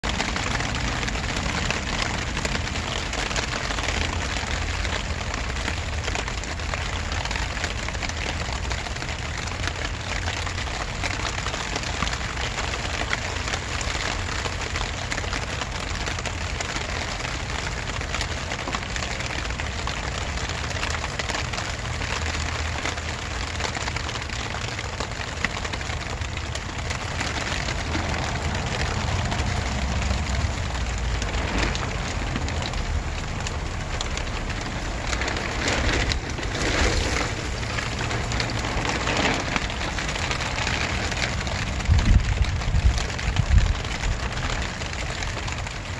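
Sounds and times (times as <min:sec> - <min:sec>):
rain falling: 0:00.0 - 0:45.9
steady low rumble: 0:25.1 - 0:44.5.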